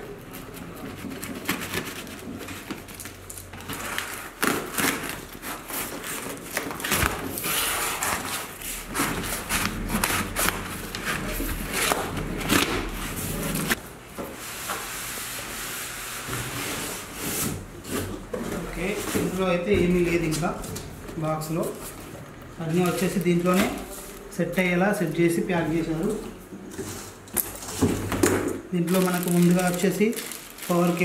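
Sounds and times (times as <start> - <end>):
cardboard scraping and rustling: 0.2 - 13.8, 16.2 - 20.6.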